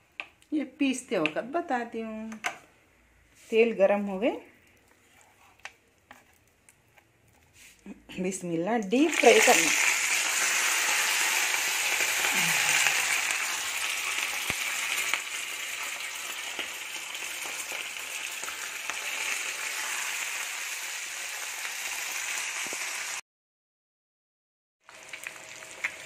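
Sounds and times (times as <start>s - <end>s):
fish deep-frying in oil: 9.0s - 23.2s, 24.8s - 26.0s.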